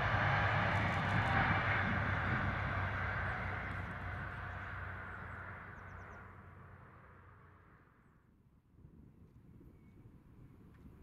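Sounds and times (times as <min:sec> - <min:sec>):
rail rumble: 0:00.0 - 0:08.2
train engine drone: 0:00.0 - 0:08.4.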